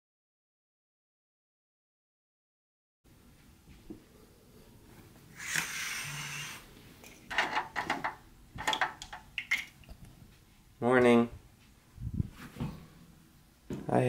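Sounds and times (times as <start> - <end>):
window blinds clicking and knocking: 7.3 - 9.2.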